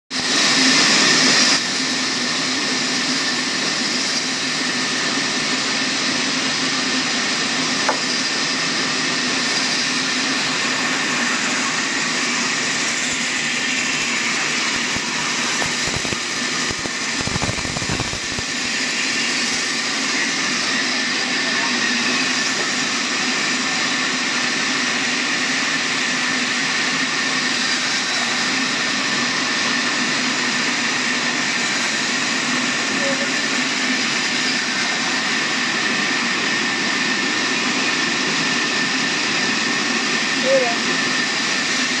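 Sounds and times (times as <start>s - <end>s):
band saw hum and whine: 6.8s - 36.5s.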